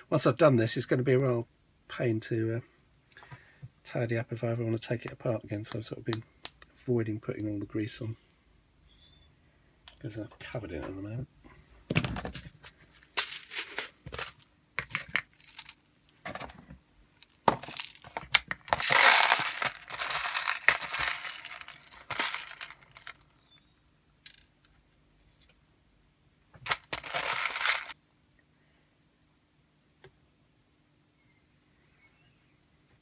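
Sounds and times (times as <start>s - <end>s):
plastic crinkling and rustling: 11.9s - 23.2s.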